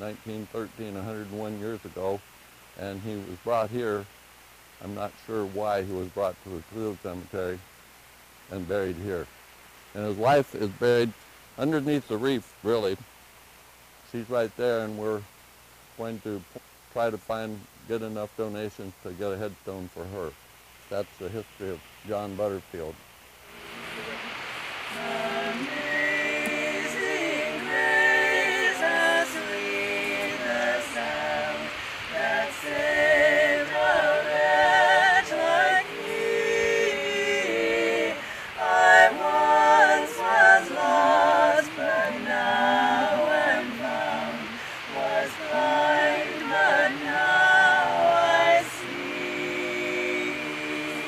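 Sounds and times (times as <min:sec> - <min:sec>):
person singing with vibrato: 0:23.5 - 0:51.0.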